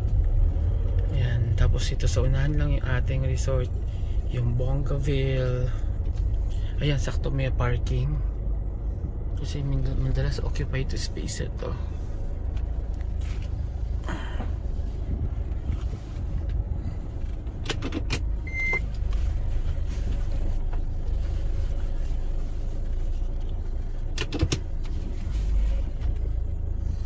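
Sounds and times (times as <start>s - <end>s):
car engine low rumble: 0.0s - 27.0s
short beep: 18.5s - 18.9s.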